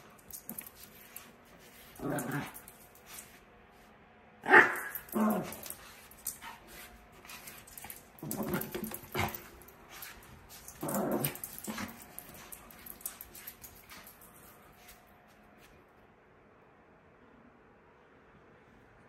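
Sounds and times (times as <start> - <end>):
dog growling: 1.9 - 2.8, 4.4 - 6.6, 7.7 - 9.7, 10.6 - 13.8
dog barking: 4.4 - 5.6.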